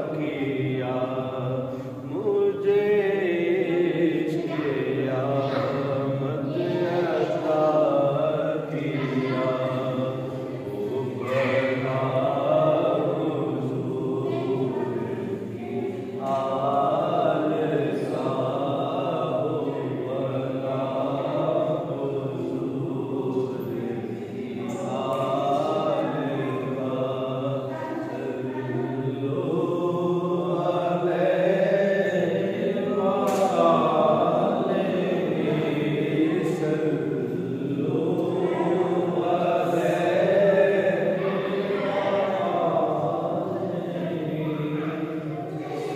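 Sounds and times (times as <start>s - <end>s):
man chanting: 0.0s - 15.0s.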